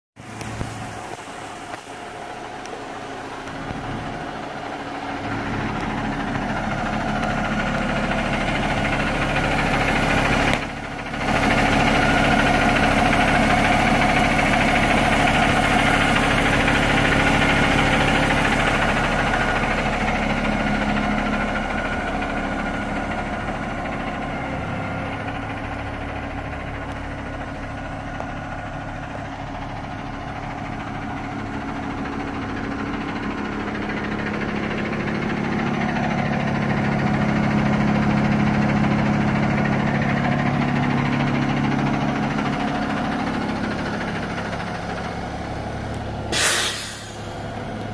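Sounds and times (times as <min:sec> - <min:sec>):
diesel engine idling: 0:00.2 - 0:47.9.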